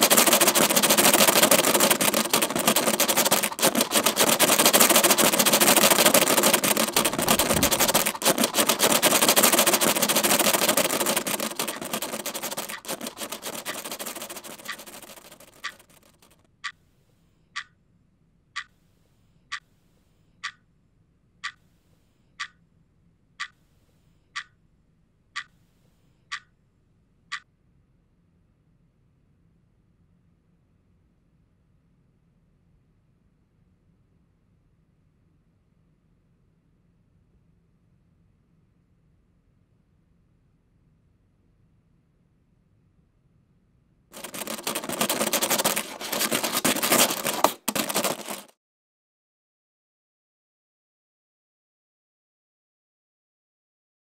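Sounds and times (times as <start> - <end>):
dense crackling noise: 0.0 - 16.3
clock ticking: 0.0 - 16.8.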